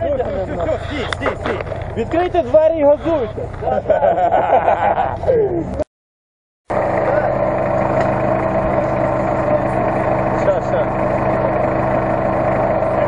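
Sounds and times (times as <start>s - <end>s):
off-road vehicle engine running: 0.0s - 5.8s, 6.7s - 13.0s
people talking: 0.0s - 5.9s, 7.0s - 7.5s, 8.6s - 11.2s.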